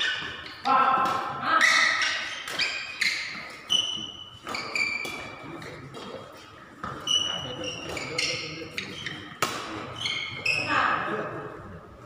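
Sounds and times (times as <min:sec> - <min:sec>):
racket hitting shuttlecock: 0:00.0 - 0:06.1, 0:09.3 - 0:09.9
shoes squeaking on court floor: 0:00.0 - 0:11.0.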